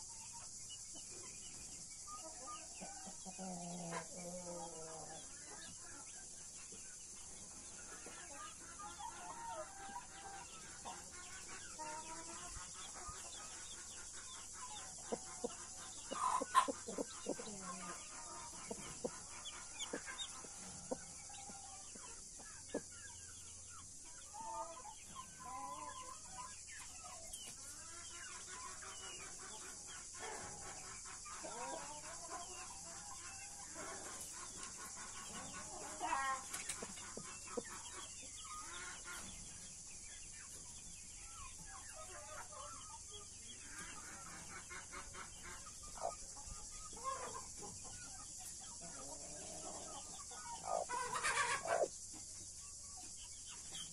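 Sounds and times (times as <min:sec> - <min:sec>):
chicks peeping: 0:00.0 - 0:53.9
hen clucking softly: 0:02.1 - 0:06.8, 0:07.7 - 0:39.6, 0:40.5 - 0:53.9.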